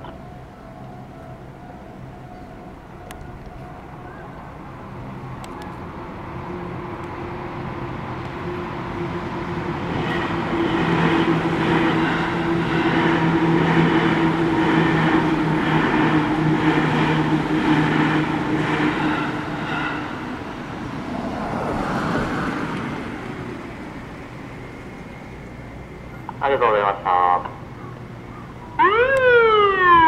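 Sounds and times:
electric train passing: 0.0 - 30.0
train wheels clattering: 10.0 - 20.7.

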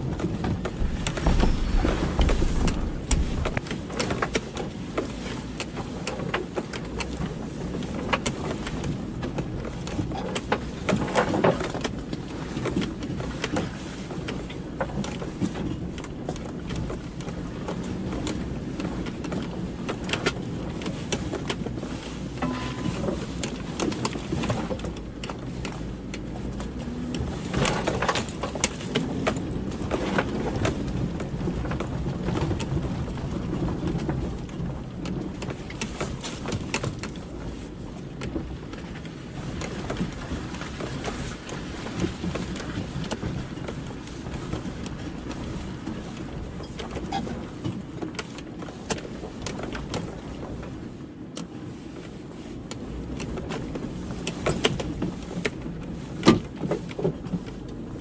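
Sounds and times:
car knocking and rattling: 0.0 - 7.4, 14.2 - 45.5
car engine and tyres rumbling: 0.0 - 51.7.

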